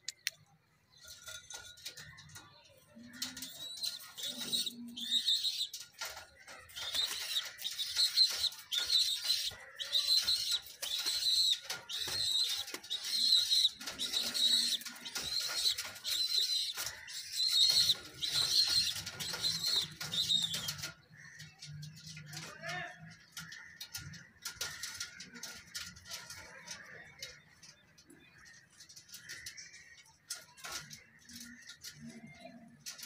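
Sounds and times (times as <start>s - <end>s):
pigeons cooing: 1.1s - 22.5s, 23.2s - 33.0s.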